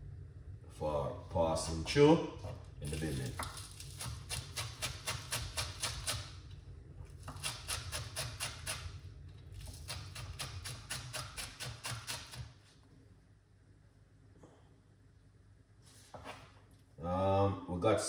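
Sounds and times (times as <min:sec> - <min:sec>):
knife chopping on cutting board: 0:03.3 - 0:06.3, 0:07.2 - 0:08.9, 0:09.6 - 0:12.5.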